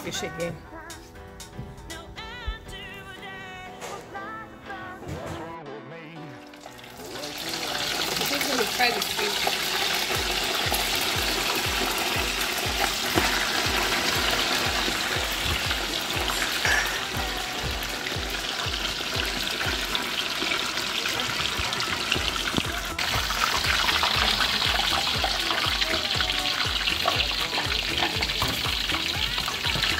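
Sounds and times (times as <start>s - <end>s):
background music with low beat: 0.0s - 8.7s, 9.6s - 29.9s
fish frying in hot oil: 6.5s - 29.9s.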